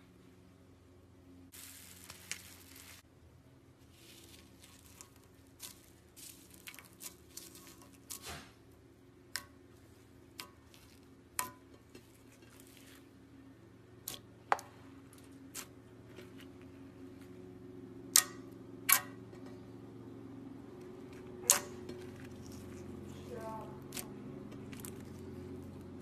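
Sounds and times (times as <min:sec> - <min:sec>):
foam beads clicking and popping: 0:01.5 - 0:03.0
slime squishing: 0:01.5 - 0:03.0, 0:03.8 - 0:08.5, 0:09.3 - 0:13.4, 0:14.0 - 0:17.3, 0:21.4 - 0:26.0.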